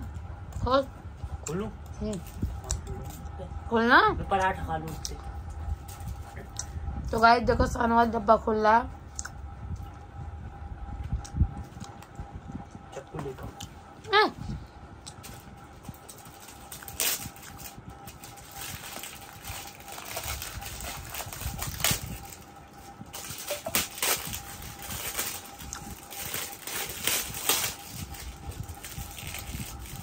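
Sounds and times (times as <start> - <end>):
wrapping paper crinkling and tearing: 15.2 - 30.0.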